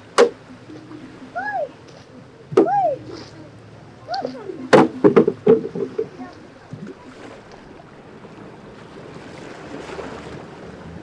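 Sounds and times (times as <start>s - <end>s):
choppy water: 0.0s - 11.0s
sharp knocks: 4.7s - 6.2s.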